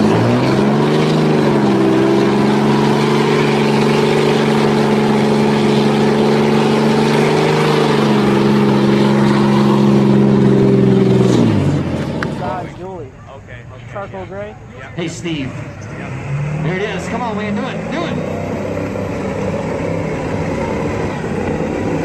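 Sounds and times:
tyres spinning: 0.0 - 12.8
truck engine at high revs: 0.0 - 13.0, 15.0 - 22.0.

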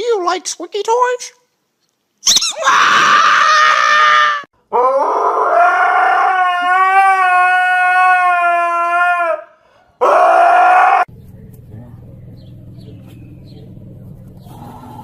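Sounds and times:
shrill squealing: 2.2 - 4.5
dog howling: 2.6 - 11.1.

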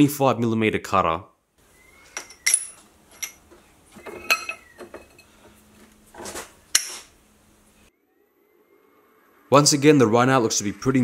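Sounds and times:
metal clanking: 2.1 - 7.0.

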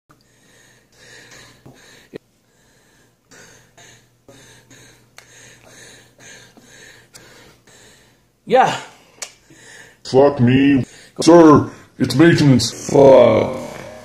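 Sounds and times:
man breathing heavily: 0.1 - 10.1, 10.8 - 12.0.

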